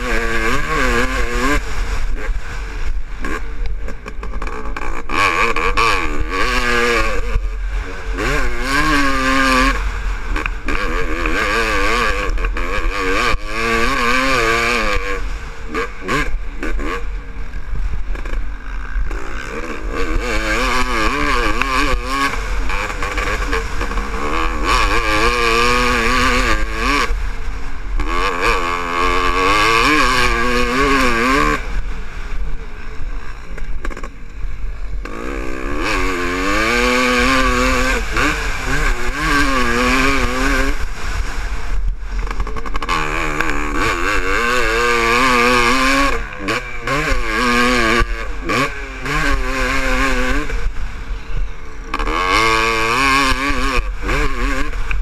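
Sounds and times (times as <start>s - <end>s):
two-stroke motorcycle engine revving: 0.0s - 55.0s
wind rumbling on microphone: 14.6s - 55.0s.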